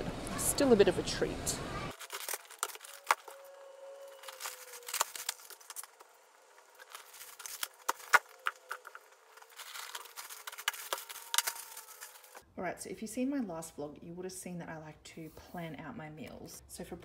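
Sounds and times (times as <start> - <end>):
shopping bags rustling: 1.8 - 12.4.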